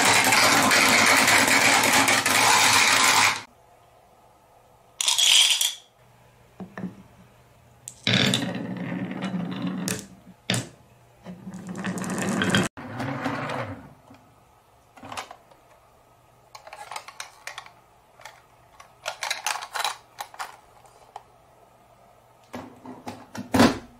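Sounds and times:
marbles rolling on wooden track: 0:11.5 - 0:12.7.

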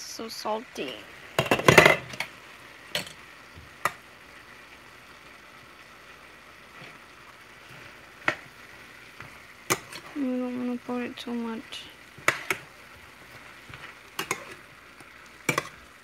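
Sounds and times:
vegetables sizzling in a pan: 0:00.0 - 0:16.0
metal clicks on a pan: 0:02.9 - 0:03.2, 0:09.7 - 0:10.0, 0:14.2 - 0:14.6, 0:15.5 - 0:15.8
metal spoon scraping a pan: 0:09.2 - 0:10.2, 0:12.1 - 0:14.8, 0:15.4 - 0:15.9.

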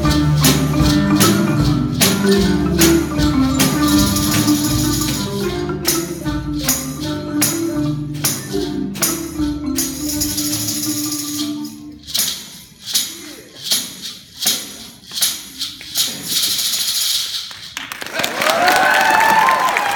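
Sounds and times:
marimba ensemble with drums: 0:00.0 - 0:17.4
tambourine and maraca shakes: 0:00.0 - 0:18.6
people cheering and whooping: 0:18.0 - 0:19.9.

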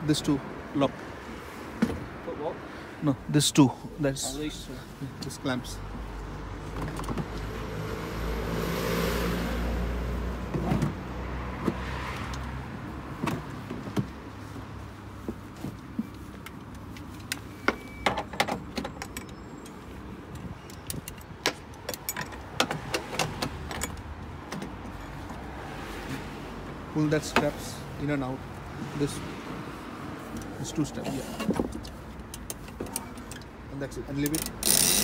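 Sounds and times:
straps and buckles handled: 0:13.1 - 0:26.2, 0:29.6 - 0:35.0.

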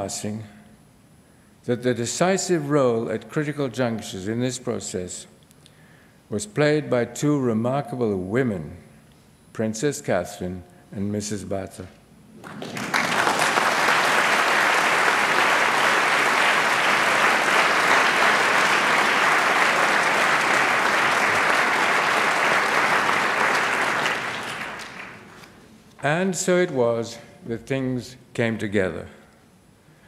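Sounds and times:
audience applauding: 0:12.4 - 0:25.4.

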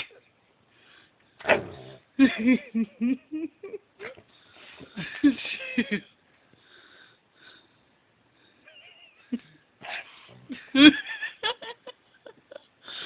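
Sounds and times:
person laughing: 0:02.2 - 0:04.2, 0:04.9 - 0:06.1, 0:08.7 - 0:12.7.

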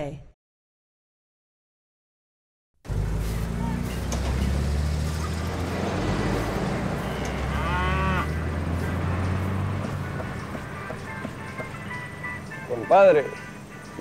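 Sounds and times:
wavering farm animal call: 0:07.0 - 0:08.4.

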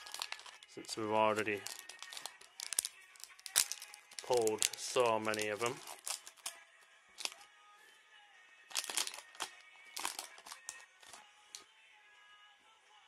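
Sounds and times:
foil wrapper crinkling and tearing: 0:00.0 - 0:00.7, 0:01.3 - 0:06.6, 0:08.7 - 0:11.2
quiet background music: 0:00.0 - 0:13.0.

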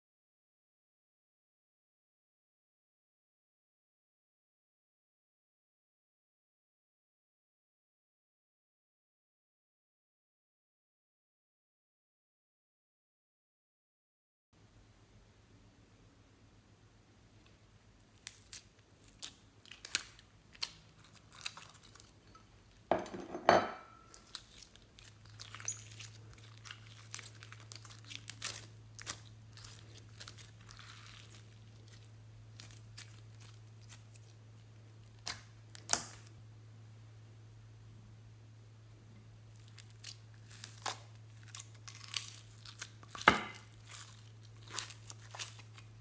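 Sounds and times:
slime crackling and popping: 0:18.1 - 0:22.2, 0:24.1 - 0:36.4, 0:39.5 - 0:46.0.

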